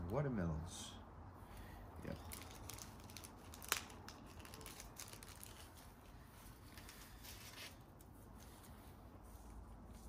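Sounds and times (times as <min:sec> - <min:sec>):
paper packet crinkling: 0:02.1 - 0:08.1.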